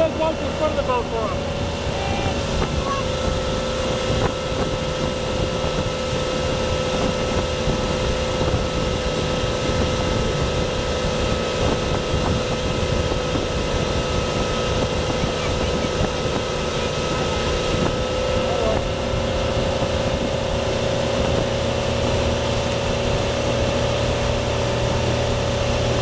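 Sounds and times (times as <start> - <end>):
motorboat engine drone: 0.0 - 26.0
water rushing: 0.0 - 26.0
wind buffeting microphone: 0.0 - 26.0.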